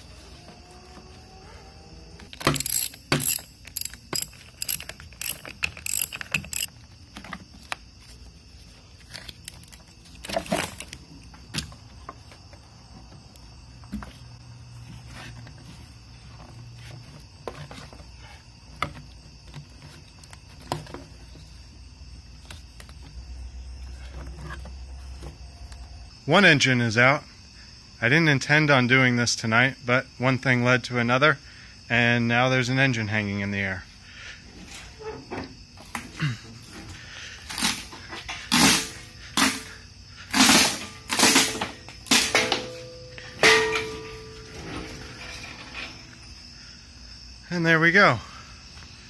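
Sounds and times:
hand tools clicking and knocking: 0:02.2 - 0:07.8, 0:40.3 - 0:46.2
ratchet wrench clicking: 0:02.3 - 0:06.7.

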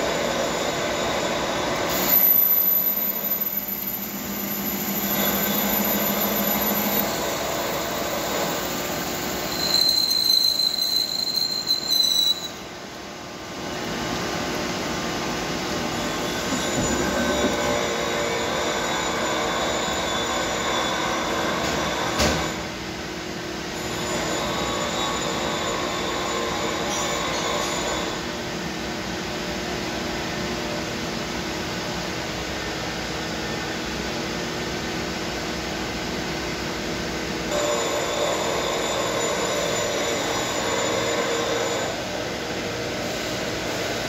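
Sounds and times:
lathe machining metal: 0:00.0 - 0:12.7, 0:15.8 - 0:22.8, 0:23.7 - 0:28.7, 0:37.5 - 0:44.0
high shrill squeal from cutting: 0:00.1 - 0:12.7, 0:16.0 - 0:22.6, 0:23.8 - 0:28.3, 0:37.5 - 0:42.2.

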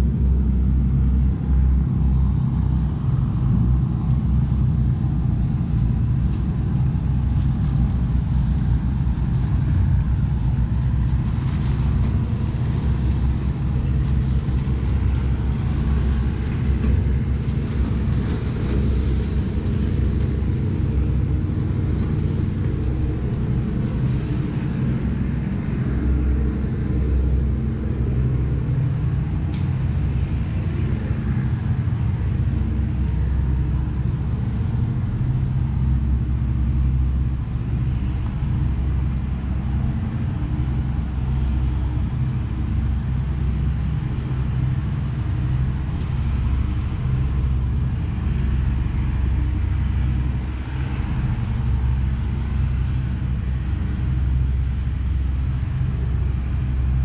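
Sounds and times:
engine rumble: 0:00.0 - 0:57.0.

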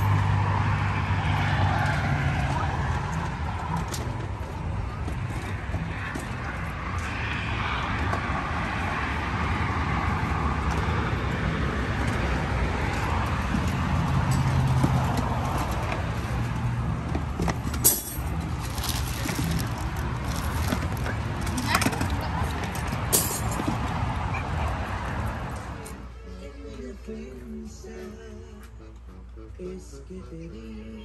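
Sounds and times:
distant traffic rumble: 0:00.0 - 0:26.5.

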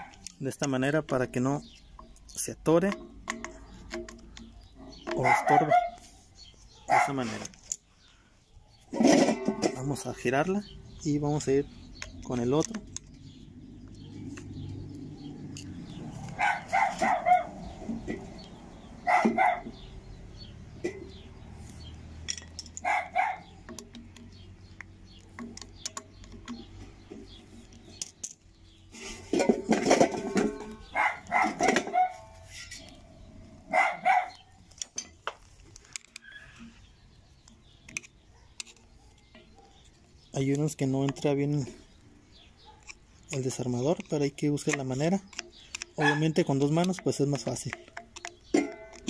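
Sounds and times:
dog barking: 0:05.2 - 0:06.0, 0:06.8 - 0:07.2, 0:16.4 - 0:17.6, 0:19.0 - 0:19.8, 0:22.8 - 0:23.5, 0:30.9 - 0:32.3, 0:33.7 - 0:34.4, 0:42.6 - 0:42.9, 0:46.0 - 0:46.3
screwdriver clicking on metal cover: 0:42.6 - 0:49.0.

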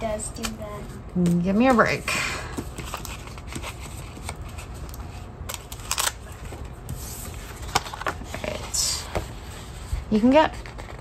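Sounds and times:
paper rustling: 0:02.6 - 0:11.0.

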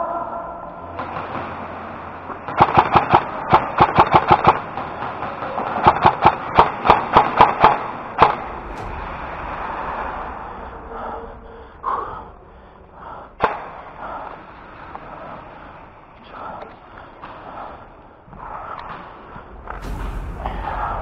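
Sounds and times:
airsoft rifle shots: 0:02.4 - 0:08.9.

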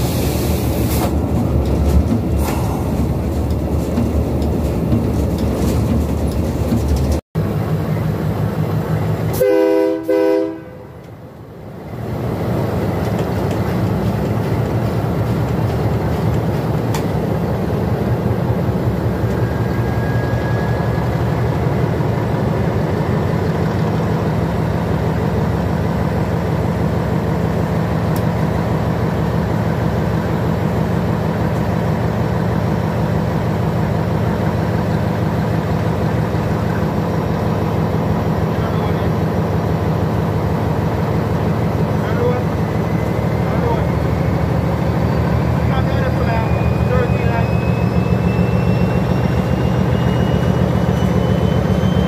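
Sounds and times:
diesel locomotive rumbling: 0:00.0 - 0:52.0
locomotive horn chord: 0:09.3 - 0:11.1.

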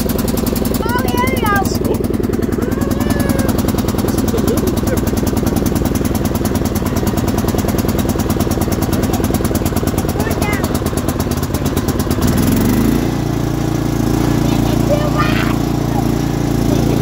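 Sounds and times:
riding lawn mower engine: 0:00.0 - 0:17.0.

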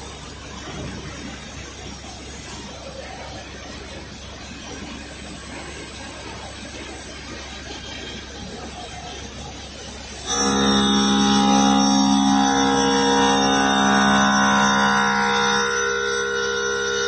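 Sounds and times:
low hum: 0:10.2 - 0:17.0
stone cutting machine noise: 0:10.2 - 0:17.0.

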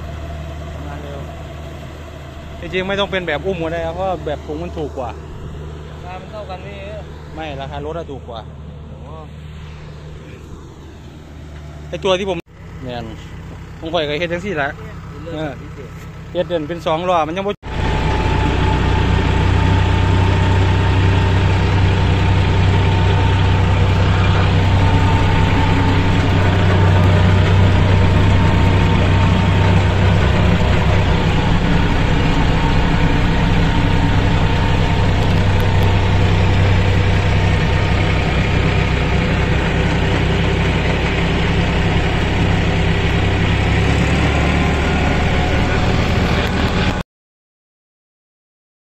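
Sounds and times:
tractor diesel engine running: 0:00.0 - 0:47.0.

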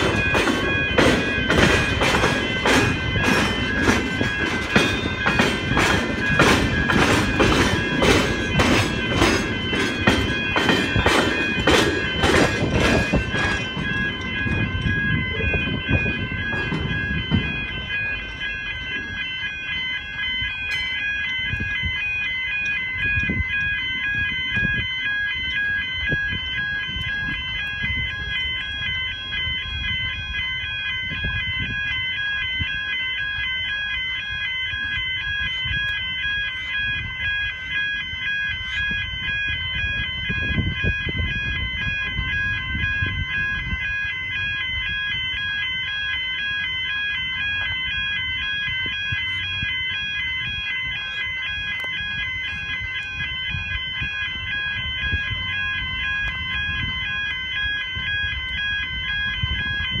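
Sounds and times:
level crossing bells ringing: 0:00.0 - 1:00.0.

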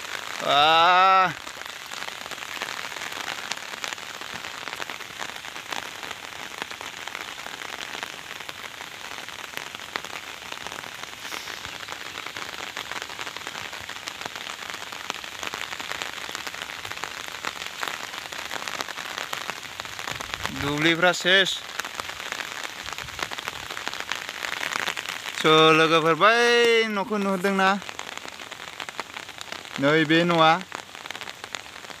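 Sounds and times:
rain hissing on water: 0:00.0 - 0:32.0.

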